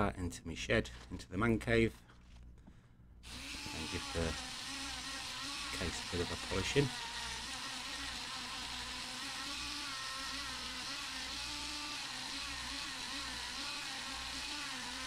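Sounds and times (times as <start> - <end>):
rotary tool high whine: 3.2 - 15.0.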